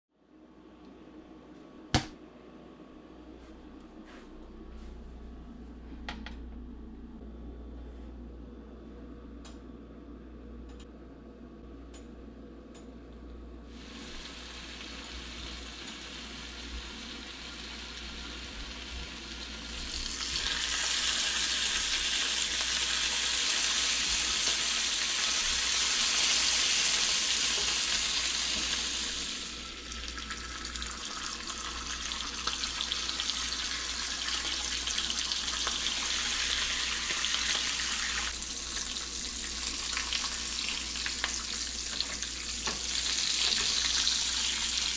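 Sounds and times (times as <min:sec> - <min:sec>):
bacon sizzling in frying pan: 0:13.7 - 0:44.9.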